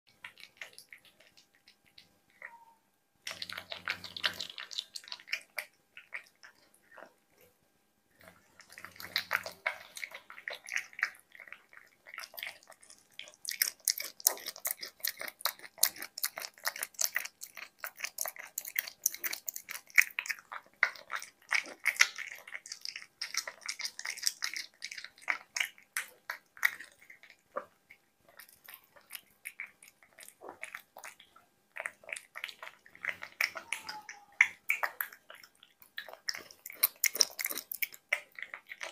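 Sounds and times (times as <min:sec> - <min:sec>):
cat chewing wet food: 0:00.1 - 0:02.6, 0:03.2 - 0:38.9.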